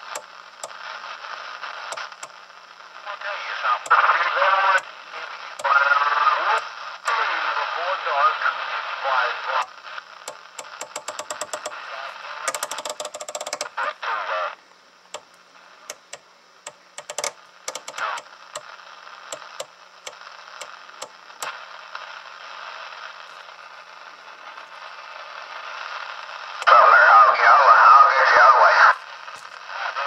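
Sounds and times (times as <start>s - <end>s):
radio static hissing: 0.0s - 30.0s
channel selector clicking: 10.3s - 11.8s, 12.5s - 13.7s, 15.1s - 18.7s.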